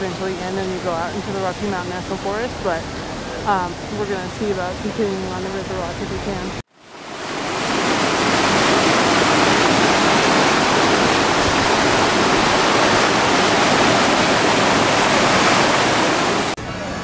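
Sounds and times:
stream rushing over rocks: 6.8s - 16.6s.

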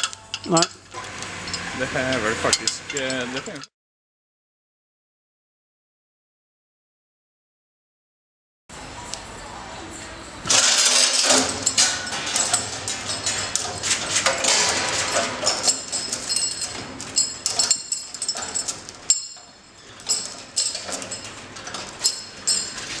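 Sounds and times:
hoist chain clanking: 0.0s - 3.7s, 10.5s - 23.0s.

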